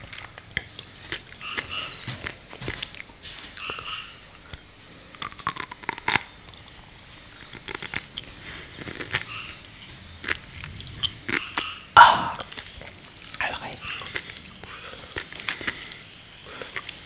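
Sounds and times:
chewing with wet pops: 0:00.0 - 0:17.0.

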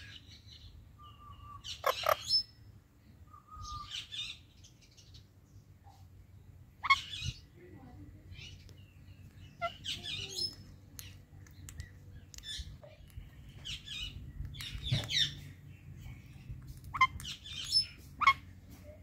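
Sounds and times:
parakeets chirping and squawking: 0:01.6 - 0:02.5, 0:06.8 - 0:07.4, 0:09.4 - 0:11.2, 0:12.3 - 0:18.6.

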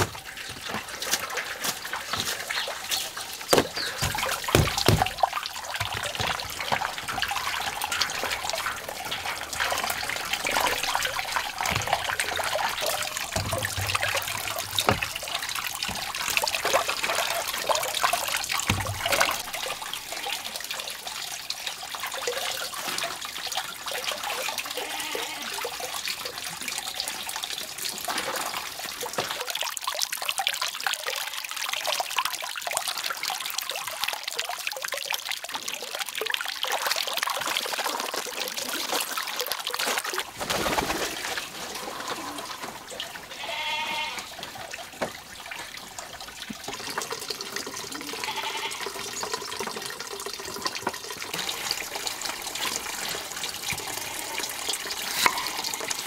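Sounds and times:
water pouring and splashing: 0:00.0 - 0:56.0
bamboo tray knocking: 0:03.5 - 0:05.2.

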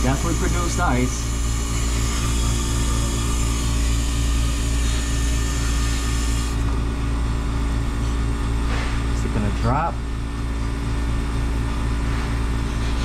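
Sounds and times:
ice maker humming: 0:00.0 - 0:07.9.

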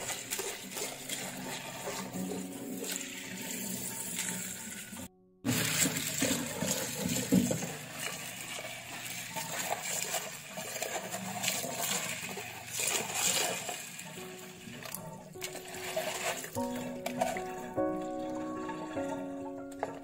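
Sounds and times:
tap water running: 0:00.0 - 0:20.0.

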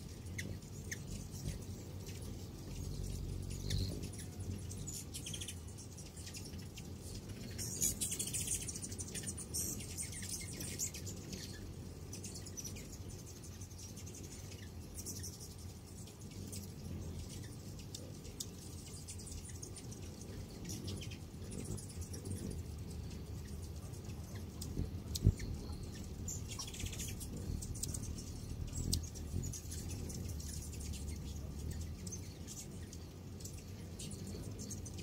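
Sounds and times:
hummingbirds chipping and twittering: 0:00.0 - 0:35.0
low hum: 0:00.0 - 0:35.0.

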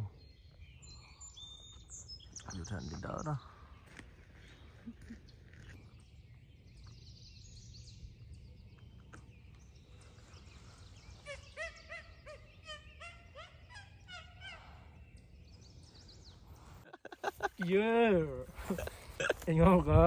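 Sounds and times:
small bird chirping: 0:00.0 - 0:17.6
turkey yelps: 0:11.2 - 0:14.7.

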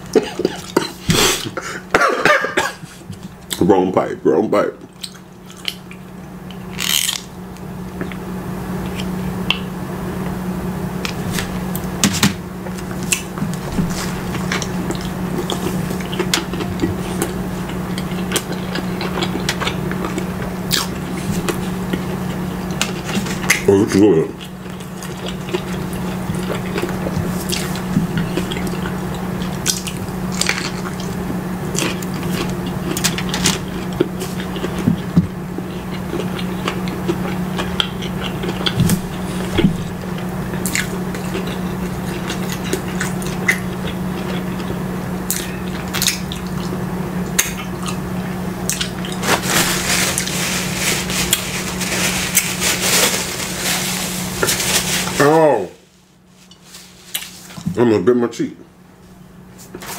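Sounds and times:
chewing and wet mouth sounds: 0:04.8 - 0:07.3, 0:12.7 - 0:50.4
paper wrapper rustling: 0:49.1 - 0:57.6.

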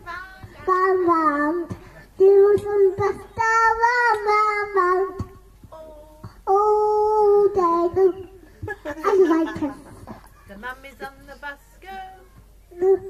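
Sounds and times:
child singing into a microphone: 0:00.4 - 0:08.4, 0:12.2 - 0:13.0.

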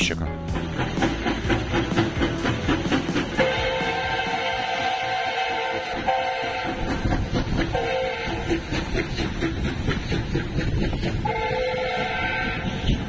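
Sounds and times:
train running rumble: 0:00.0 - 0:13.0
steam locomotive whistle blasts: 0:03.3 - 0:06.9, 0:07.7 - 0:08.5, 0:11.2 - 0:13.0.

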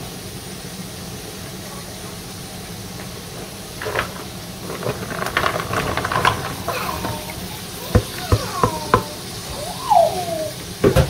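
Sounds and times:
onions sizzling in oil: 0:00.0 - 0:11.0
vegetables clattering into pan: 0:03.6 - 0:09.2.

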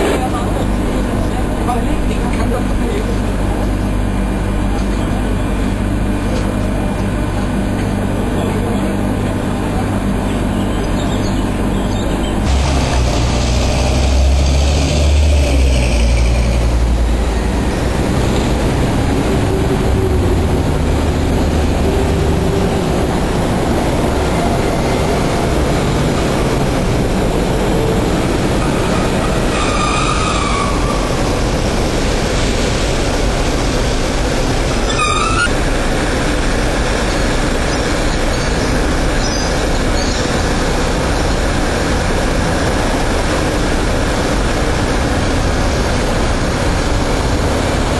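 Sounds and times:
train rumbling on track: 0:00.0 - 0:47.9
wheel squeals: 0:34.8 - 0:35.6.

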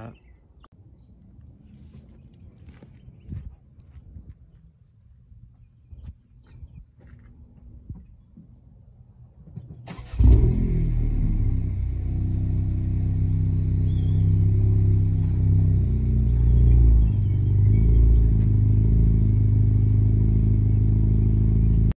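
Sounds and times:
car engine idling: 0:09.9 - 0:22.0.

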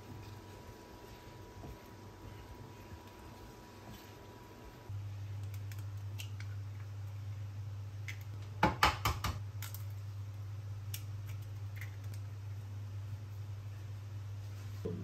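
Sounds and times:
induction hob humming: 0:00.0 - 0:06.0.

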